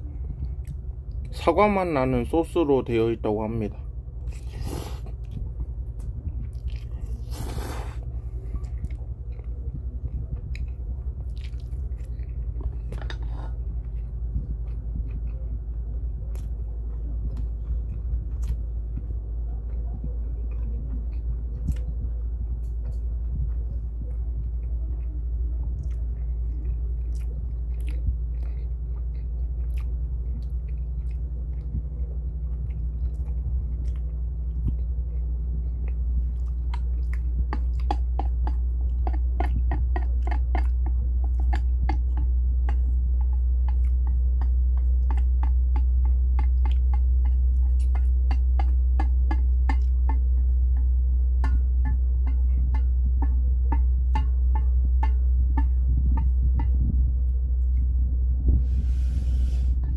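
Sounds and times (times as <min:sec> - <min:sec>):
low hum: 0:00.0 - 0:59.9
wet chewing: 0:04.2 - 0:56.7
slurping noodles: 0:04.4 - 0:05.1, 0:07.2 - 0:08.0.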